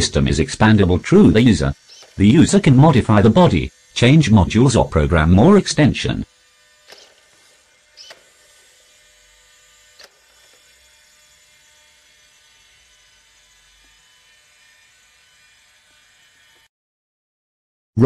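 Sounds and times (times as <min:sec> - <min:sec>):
robot servo motors humming: 0:00.4 - 0:16.7
short clicks: 0:01.9 - 0:02.2, 0:06.8 - 0:07.3, 0:08.0 - 0:08.3.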